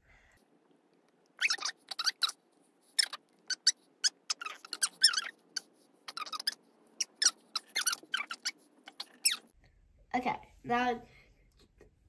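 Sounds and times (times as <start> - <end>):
plastic pen tip squeaking on paper: 1.4 - 9.5.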